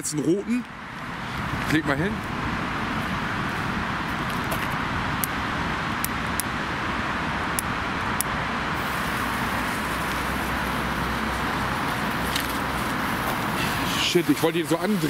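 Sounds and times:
firework cracks: 8.8s - 14.4s
firework hissing: 8.8s - 15.0s.

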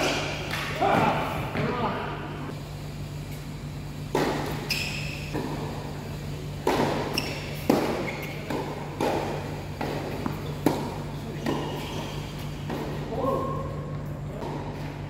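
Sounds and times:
steady low hum: 0.0s - 15.0s
tennis ball hits: 4.1s - 4.6s, 6.6s - 11.8s.

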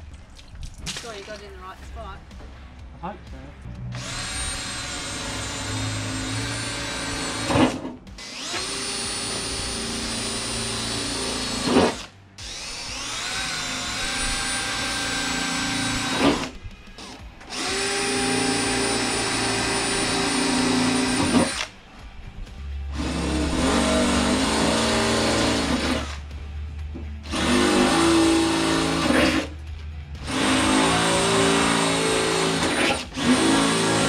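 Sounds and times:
power drill boring sheet metal: 3.9s - 21.7s, 22.9s - 26.3s, 27.2s - 29.5s, 30.2s - 34.0s.

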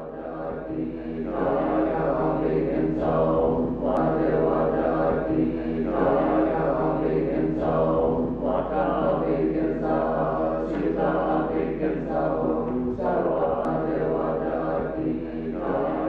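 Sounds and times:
low male voices chanting: 0.0s - 16.0s.

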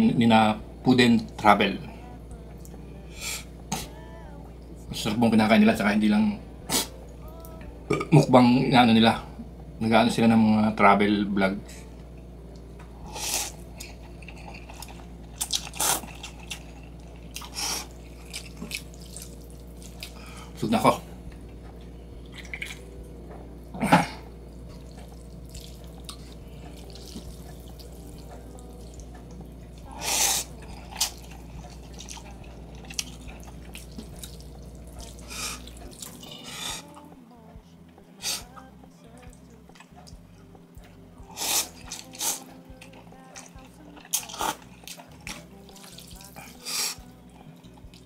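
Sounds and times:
steady low hum: 0.0s - 48.0s
chewing and slurping noodles: 13.0s - 20.3s, 22.2s - 22.8s, 24.8s - 37.0s, 41.3s - 48.0s.

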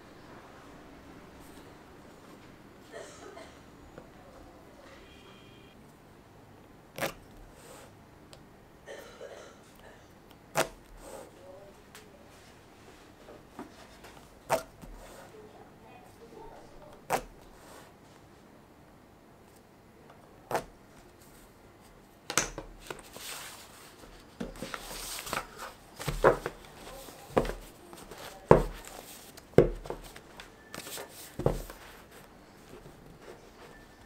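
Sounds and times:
paper sliding and rustling: 22.8s - 29.4s, 30.0s - 33.8s
paper stack knocking on table: 24.4s - 26.6s, 28.4s - 28.9s, 29.5s - 30.1s, 31.3s - 31.8s.

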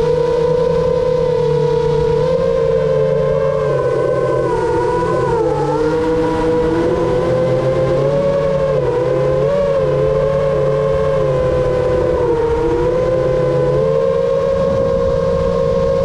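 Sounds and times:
quadcopter motors whining: 0.0s - 16.0s.

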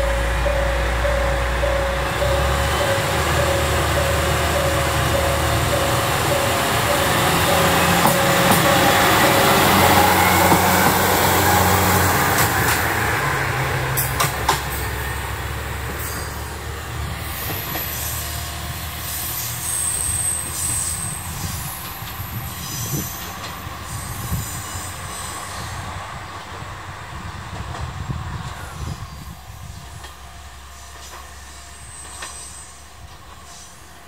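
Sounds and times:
high squeal: 0.0s - 12.1s, 17.2s - 25.9s, 30.7s - 33.9s
wheels clacking over rail joints: 0.0s - 25.1s
diesel railcar engine hum: 0.0s - 34.0s.

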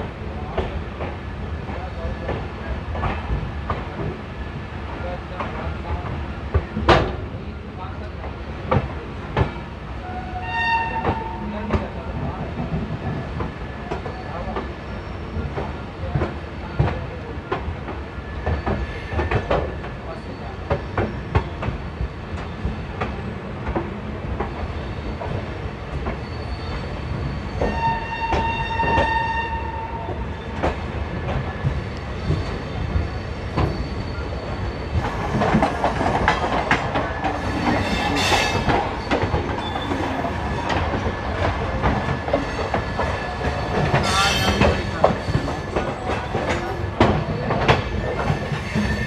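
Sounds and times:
train rumble and wheel clicking: 0.0s - 49.0s
train horn: 10.0s - 11.5s, 27.6s - 30.1s.

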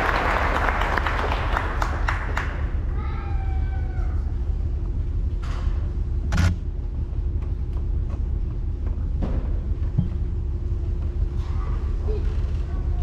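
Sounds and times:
low room rumble: 0.0s - 13.0s.

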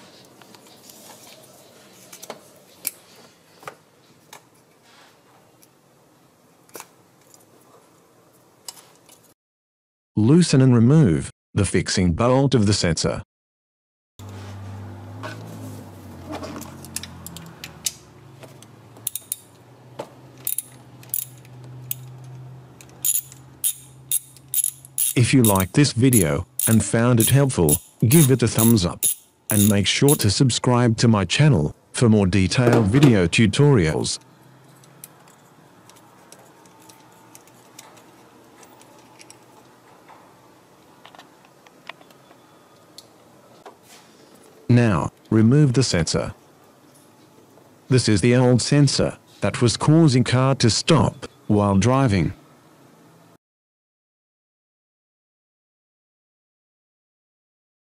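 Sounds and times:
ratchet wrench clicking: 19.0s - 19.5s, 20.4s - 22.2s, 22.8s - 30.3s.

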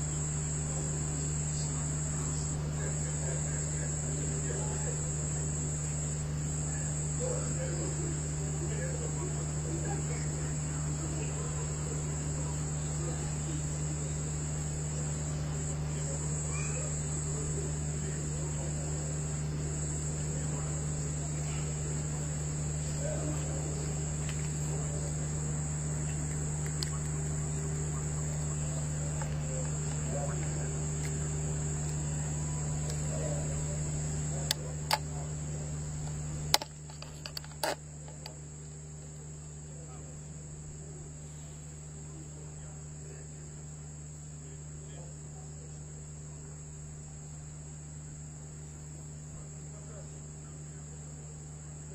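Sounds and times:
insects chirring: 0.0s - 51.9s
steady low hum: 0.0s - 51.9s
sharp clicks: 26.1s - 27.3s, 34.4s - 35.2s, 36.0s - 38.4s.

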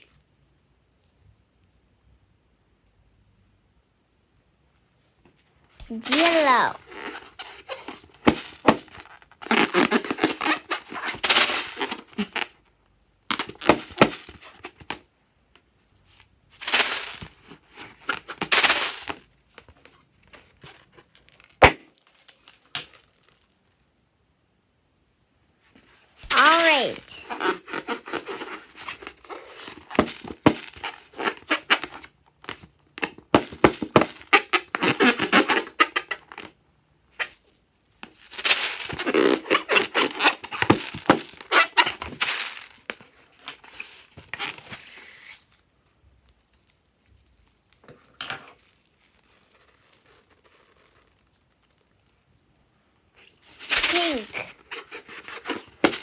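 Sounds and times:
rubber balloon crackling and squeaking: 5.8s - 12.7s, 13.3s - 14.9s, 25.9s - 37.4s, 38.1s - 45.6s, 48.4s - 52.2s, 53.2s - 56.0s
person calling out: 5.9s - 6.8s, 26.3s - 27.2s, 53.8s - 54.5s.

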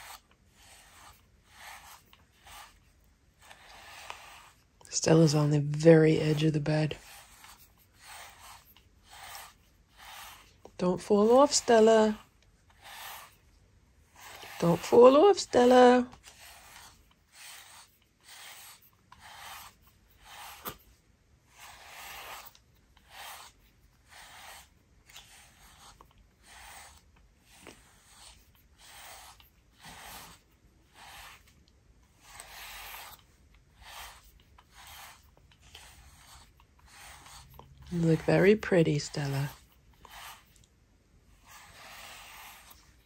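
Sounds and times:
brush stroking through fur: 0.0s - 20.9s, 21.5s - 40.6s, 41.3s - 43.0s.

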